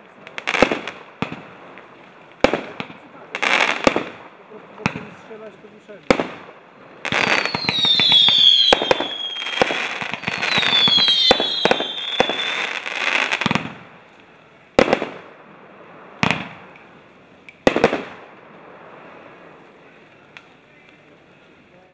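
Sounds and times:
firework cracks and bangs: 0:00.0 - 0:21.5
firework whistles: 0:07.0 - 0:13.5.

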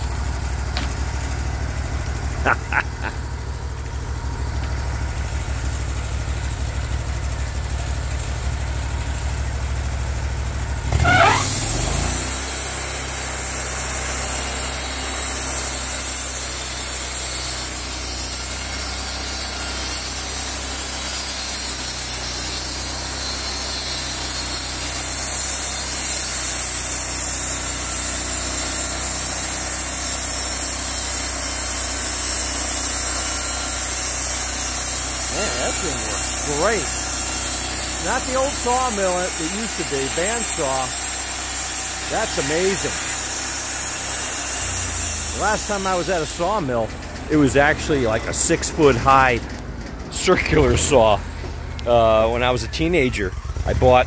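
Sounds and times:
bandsaw mill engine: 0:00.0 - 0:54.0
saw blade hissing: 0:02.4 - 0:03.2, 0:11.0 - 0:49.2.

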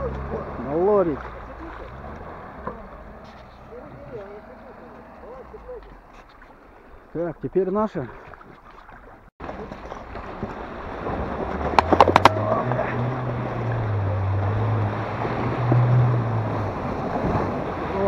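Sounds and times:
car engine pulling under load: 0:00.0 - 0:05.9, 0:09.4 - 0:17.9
water and ice sloshing: 0:00.0 - 0:18.0.

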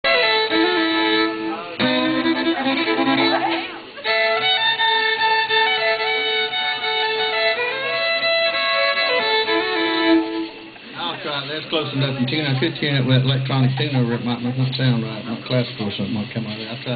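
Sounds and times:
fiddle bowed in long notes: 0:00.0 - 0:10.8.

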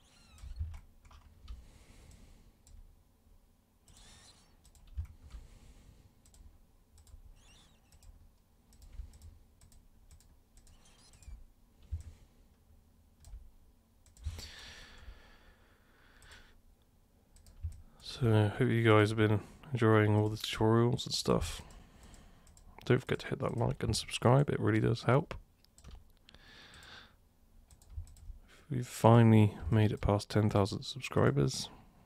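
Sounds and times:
computer mouse and keyboard clicks: 0:06.2 - 0:12.2, 0:17.4 - 0:17.8, 0:25.6 - 0:26.9, 0:27.7 - 0:28.4.

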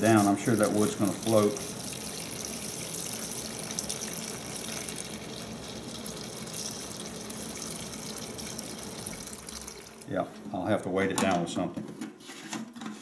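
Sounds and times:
liquid pouring into plastic tub: 0:00.0 - 0:10.2.

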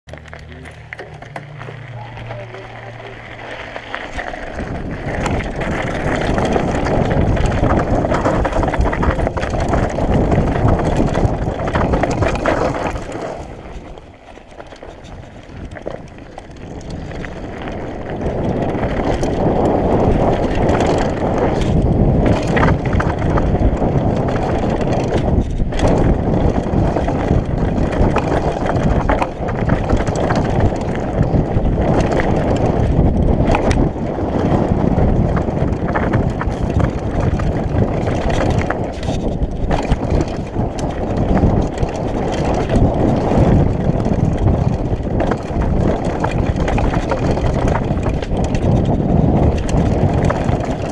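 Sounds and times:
bike knocks and rattles: 0:00.1 - 0:50.9
bike tyres rolling on gravel: 0:00.1 - 0:50.9
wind buffeting microphone: 0:00.1 - 0:50.9.

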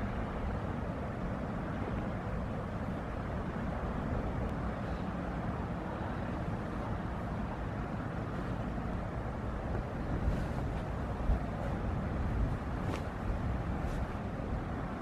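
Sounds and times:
wind on microphone: 0:09.4 - 0:15.0.

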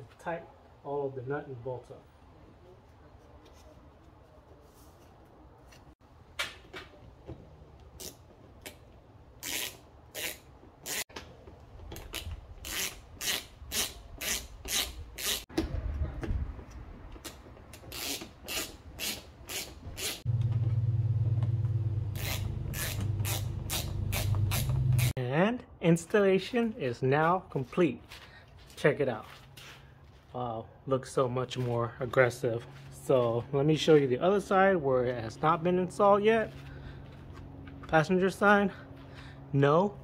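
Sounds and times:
ratchet wrench ratcheting: 0:09.4 - 0:11.0, 0:12.6 - 0:15.4, 0:22.2 - 0:25.1.

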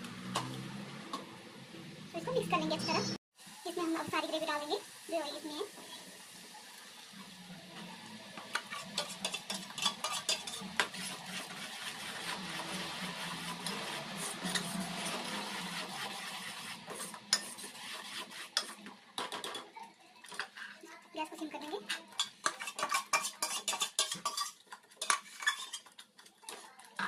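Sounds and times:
ladle stirring thick gravy: 0:07.7 - 0:19.3, 0:21.9 - 0:27.0.

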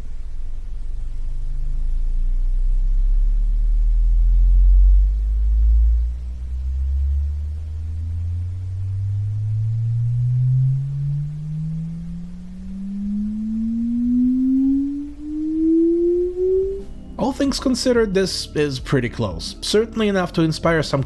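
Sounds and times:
low sine sweep tone rising: 0:00.0 - 0:20.2.

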